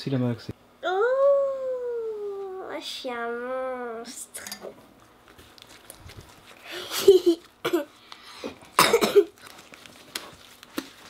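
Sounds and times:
child coughing: 6.9 - 9.4.

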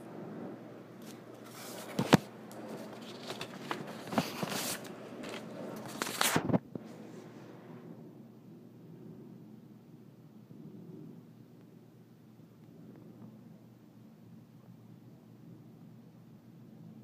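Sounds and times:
phone handling rustling: 1.0 - 6.6.

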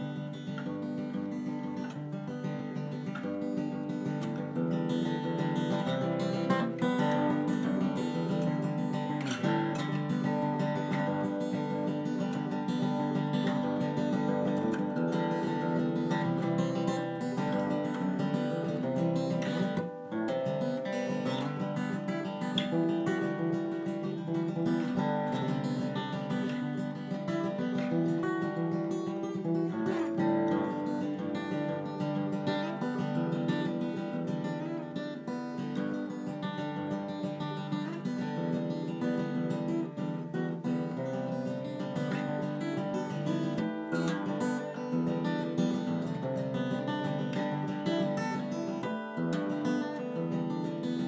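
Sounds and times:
acoustic guitar playing: 0.0 - 51.0.

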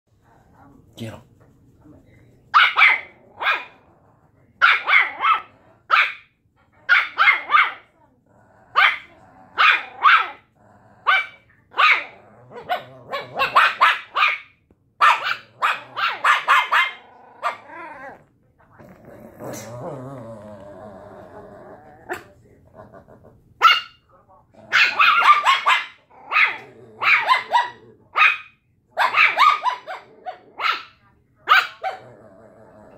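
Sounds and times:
puppies barking: 2.6 - 3.8, 4.6 - 6.3, 11.0 - 17.8, 24.7 - 32.1.

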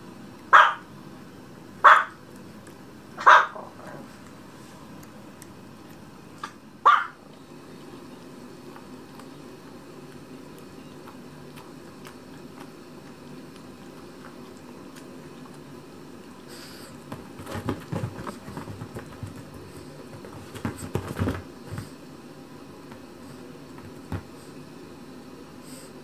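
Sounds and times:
low room hum: 0.0 - 26.0
dog licking fur: 8.6 - 17.3
paw taps and scuffs on leather: 17.0 - 21.9.

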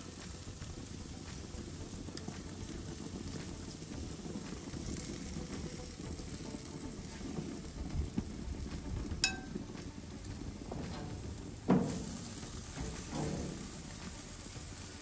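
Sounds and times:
metal clink: 9.2 - 9.6.

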